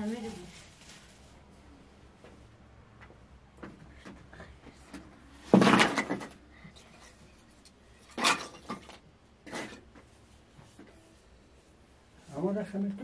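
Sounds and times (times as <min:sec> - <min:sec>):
fabric rustling: 0:00.0 - 0:01.6.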